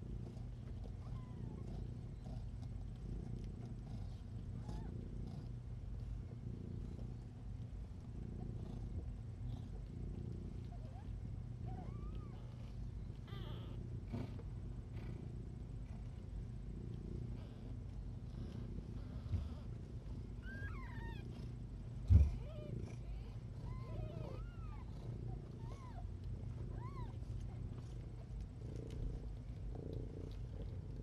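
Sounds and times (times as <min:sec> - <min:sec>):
cat purring: 0:00.0 - 0:31.0
kittens squeaking mews: 0:20.4 - 0:21.2.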